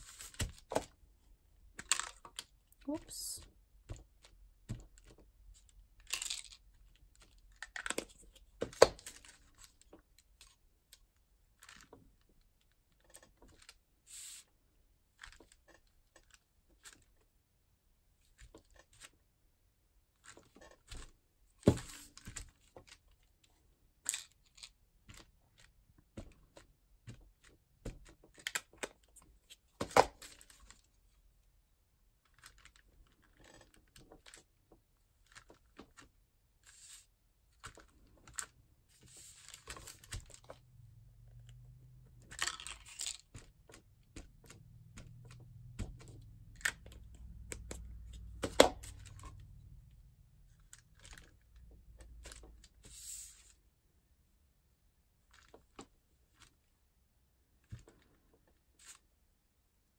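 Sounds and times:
paper rustling: 0.0s - 0.9s.

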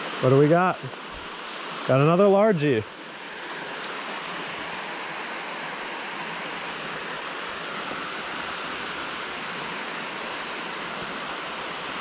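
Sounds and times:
water rushing down concrete channel: 3.1s - 12.0s.

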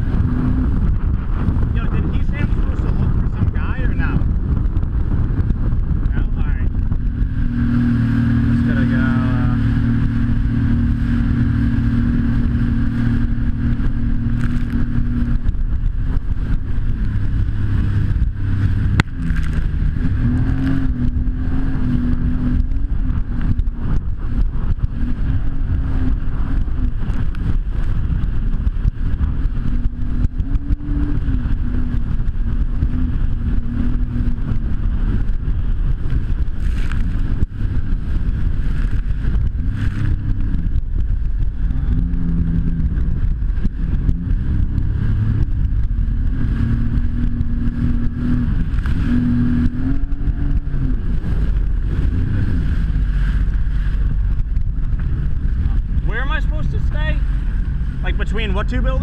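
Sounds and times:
jet ski engine droning: 0.0s - 59.0s.

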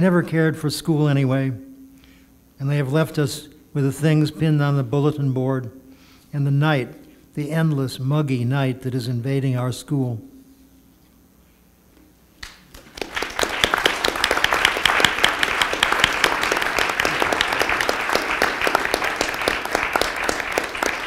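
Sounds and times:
audience applauding: 12.4s - 21.0s.

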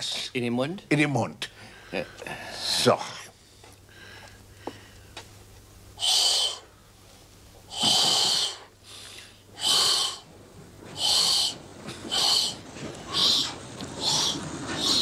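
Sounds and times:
man blowing hard into balloon: 6.0s - 6.7s, 7.7s - 8.7s, 9.6s - 10.3s, 11.0s - 15.0s.

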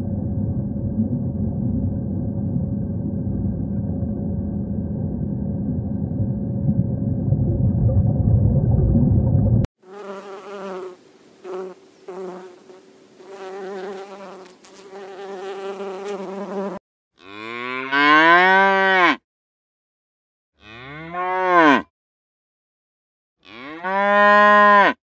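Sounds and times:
low rumbling: 0.0s - 9.7s
bees buzzing: 9.8s - 16.8s
calf mooing: 17.2s - 19.2s, 20.6s - 21.8s, 23.4s - 25.0s.

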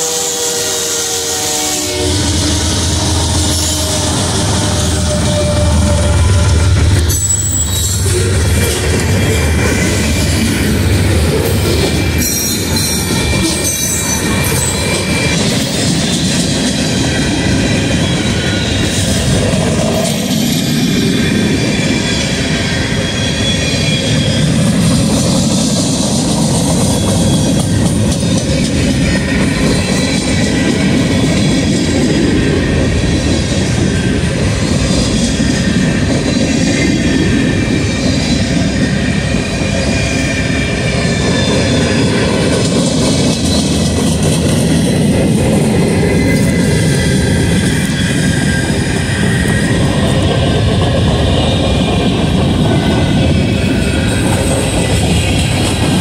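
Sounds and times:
wheels squealing: 0.0s - 32.8s
train wheels rumbling on rails: 0.0s - 56.0s.

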